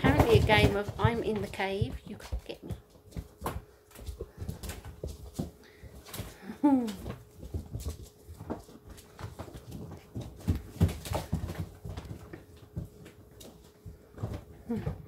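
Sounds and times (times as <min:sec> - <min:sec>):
puppies scuffling on wooden floor: 0:00.0 - 0:15.0.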